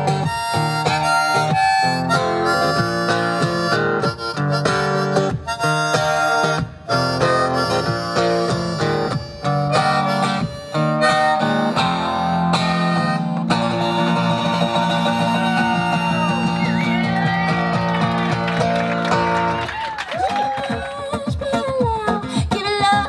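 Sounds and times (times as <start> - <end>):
strummed acoustic guitar: 0.0 - 19.6, 21.0 - 23.0
harmonica solo: 0.0 - 19.7.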